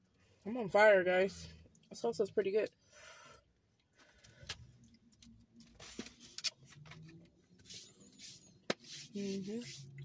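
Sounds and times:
soft chewing: 3.6 - 7.4.

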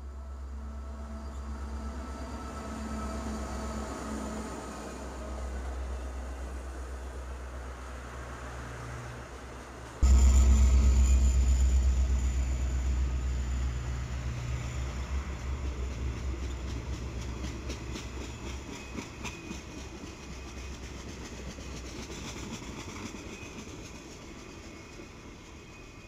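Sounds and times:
diesel locomotive engine rumble: 0.0 - 26.0.

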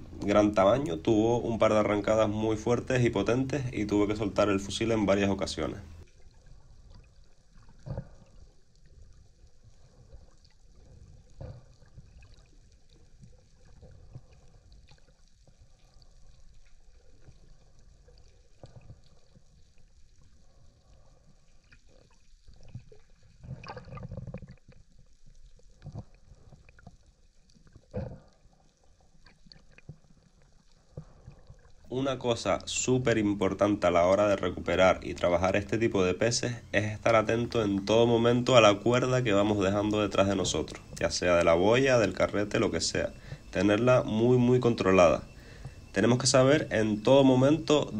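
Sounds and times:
underwater rumble of moving water: 0.0 - 47.9
underwater knocks and clicks: 7.6 - 8.3, 11.1 - 12.2, 22.6 - 24.9.

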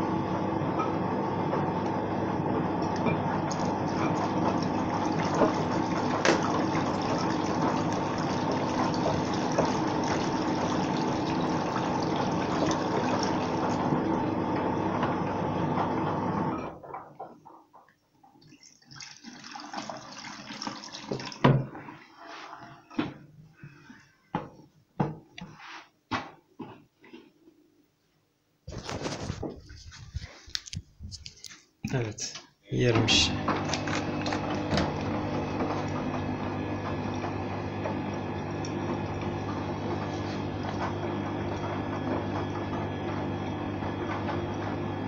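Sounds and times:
water running into plastic container: 2.7 - 15.3, 18.3 - 21.8, 32.9 - 45.0
water sloshing: 3.4 - 14.2, 33.4 - 42.3
water dripping: 3.5 - 13.8.

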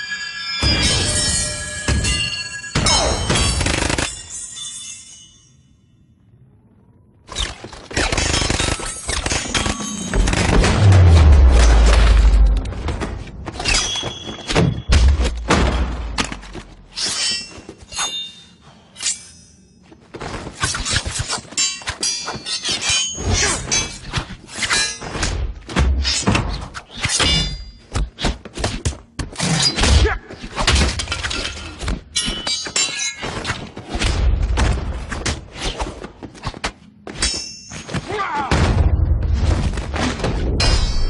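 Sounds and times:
fight hits and thuds: 9.5 - 16.8.

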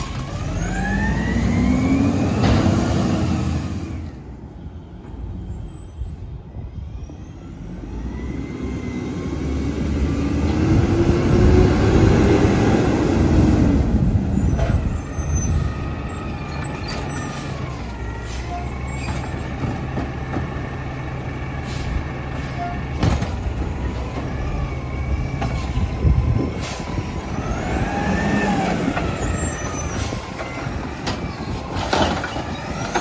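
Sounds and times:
garbage truck diesel engine: 0.0 - 33.0
air brake hiss: 21.6 - 22.6.

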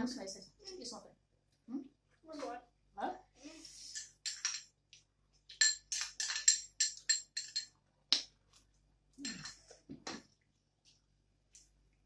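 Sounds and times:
metal spoon clinking glass bowl: 4.0 - 4.7, 5.5 - 7.8, 9.2 - 9.7.

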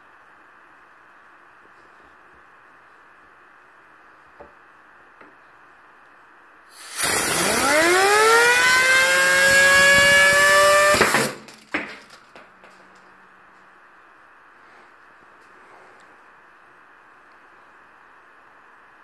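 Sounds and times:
air blow gun hissing: 6.7 - 11.4
fidget spinner whining: 6.8 - 11.4.

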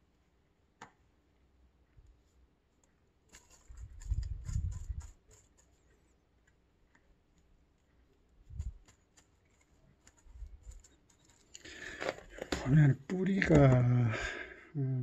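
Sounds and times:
moss crackling and clicking: 2.2 - 13.9.

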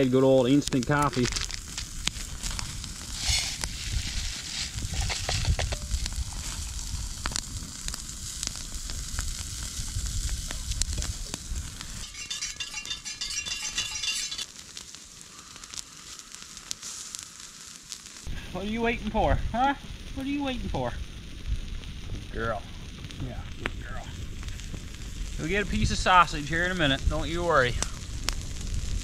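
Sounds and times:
campfire crackling and sizzling: 0.0 - 29.0
sharp pops: 0.7 - 14.9.

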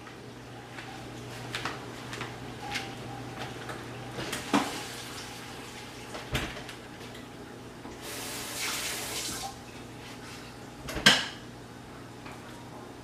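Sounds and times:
kitchen tap running: 7.9 - 9.6.

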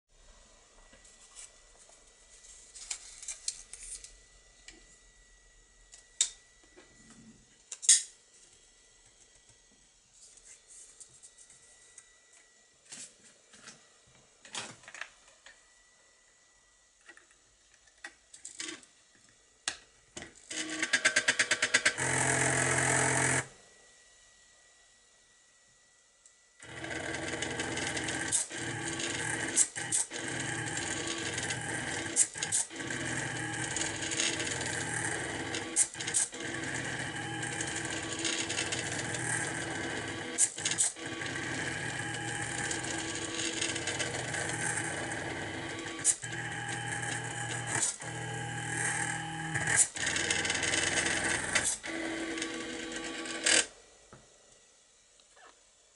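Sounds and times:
stepper motors buzzing and whining: 26.6 - 53.6.

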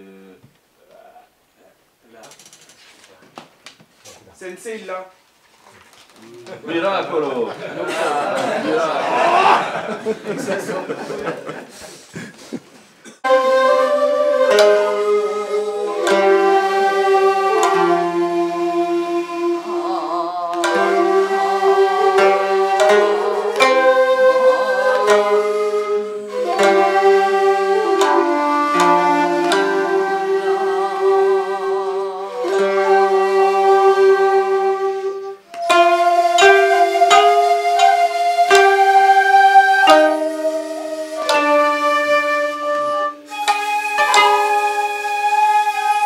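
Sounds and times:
plucked string instruments: 6.5 - 11.4, 13.1 - 46.0.

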